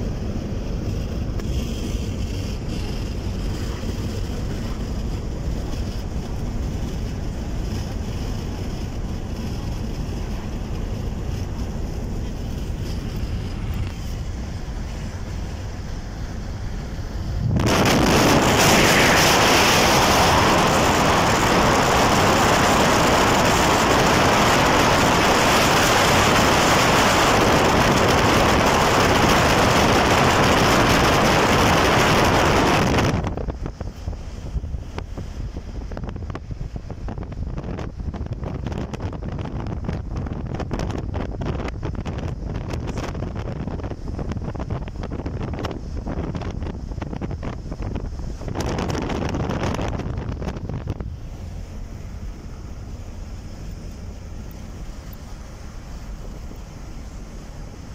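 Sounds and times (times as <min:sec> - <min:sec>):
road rumble inside car: 0:00.0 - 0:57.9
wind buffeting microphone: 0:00.0 - 0:57.9
wind rushing through car window: 0:00.0 - 0:57.9.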